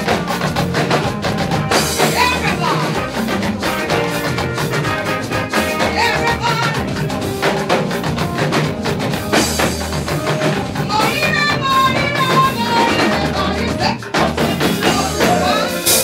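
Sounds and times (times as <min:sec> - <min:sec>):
drums and percussion beat: 0:00.0 - 0:16.0
person singing: 0:11.0 - 0:16.0.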